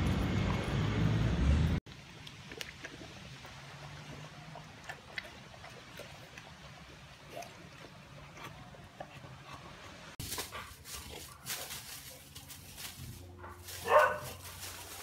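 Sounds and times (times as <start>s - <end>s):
scuffling in dry leaves: 10.2s - 15.0s.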